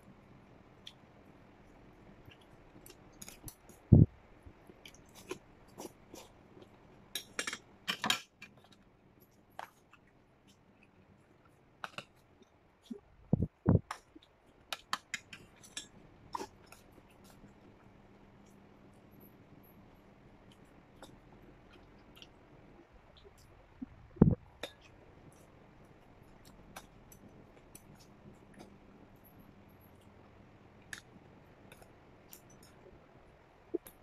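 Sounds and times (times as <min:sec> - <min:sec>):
chewing: 0:04.7 - 0:07.5, 0:15.2 - 0:17.8, 0:20.4 - 0:22.4.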